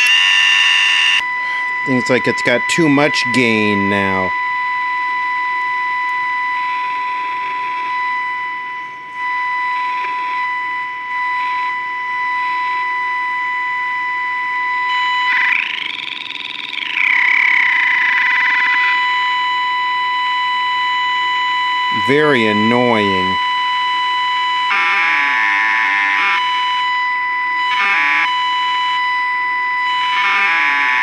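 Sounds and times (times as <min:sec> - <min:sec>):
distorted test tone from radio: 0:00.0 - 0:31.0
radio hiss: 0:01.0 - 0:04.3, 0:21.9 - 0:23.4
whistle sweeping up and down: 0:14.9 - 0:19.2.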